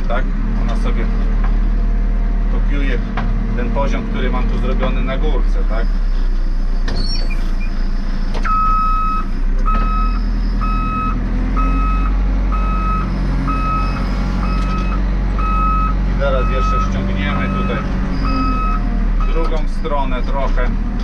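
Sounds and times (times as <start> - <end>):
diesel engine running: 0.0 - 21.0
reverse alarm beeping: 8.5 - 19.4.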